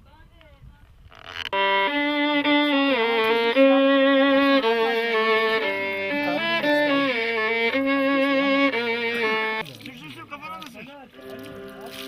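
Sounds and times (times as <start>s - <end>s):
bowed violin melody: 1.4s - 9.6s, 11.1s - 12.0s.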